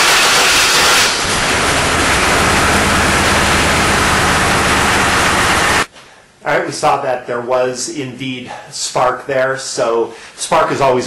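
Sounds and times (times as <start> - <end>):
loud rushing noise: 0.0 - 5.9
car engine running: 1.1 - 5.9.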